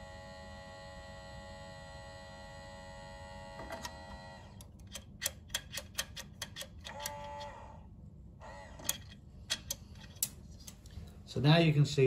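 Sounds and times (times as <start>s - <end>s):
sharp metallic clicks: 4.6s - 7.4s.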